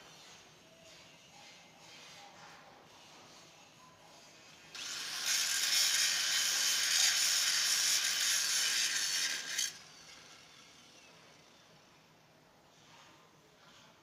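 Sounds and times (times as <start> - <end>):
hissing welding arc: 4.8 - 10.2.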